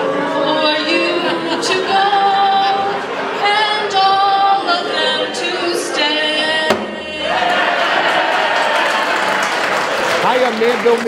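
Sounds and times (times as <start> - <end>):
woman singing unaccompanied: 0.0 - 7.6.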